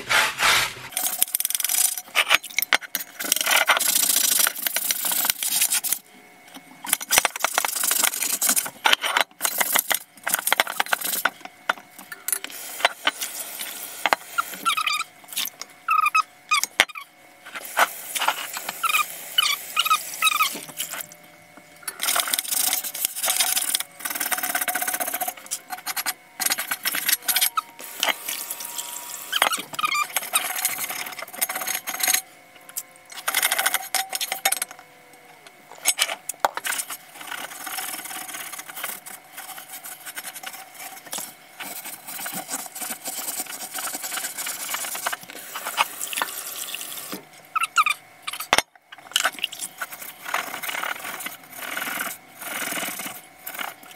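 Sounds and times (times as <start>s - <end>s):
brush scrubbing grill pan: 0.0s - 1.0s
running tap water: 45.4s - 47.2s.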